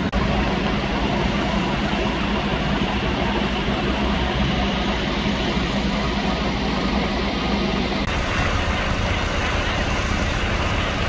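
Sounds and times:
diesel engine idling: 0:08.0 - 0:11.0.

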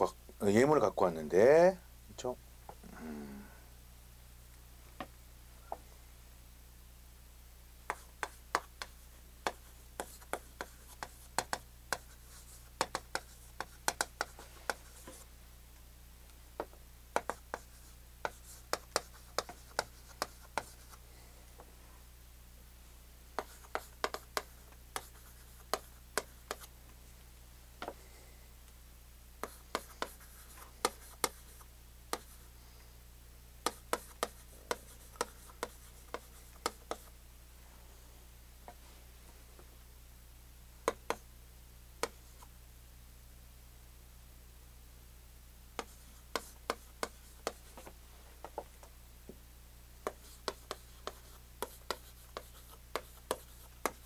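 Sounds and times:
chalk tapping on chalkboard: 0:07.9 - 0:15.2, 0:16.6 - 0:20.9, 0:23.4 - 0:26.7, 0:29.4 - 0:32.4, 0:33.6 - 0:37.1, 0:40.9 - 0:41.2, 0:45.8 - 0:48.6, 0:50.0 - 0:54.0.

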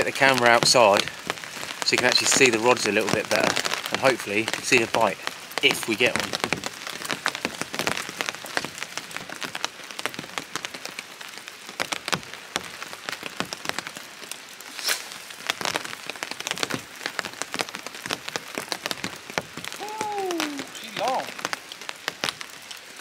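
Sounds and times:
hard rain falling: 0:00.0 - 0:23.0.

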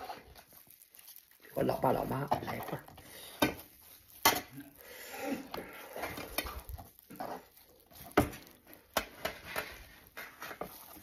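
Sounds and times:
meat being pulled apart: 0:00.1 - 0:01.6.

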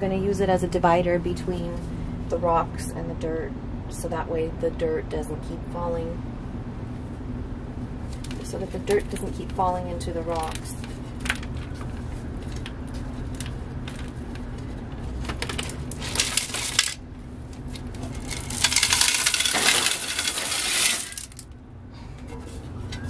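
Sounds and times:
rocks clattering against glass: 0:17.8 - 0:21.5.

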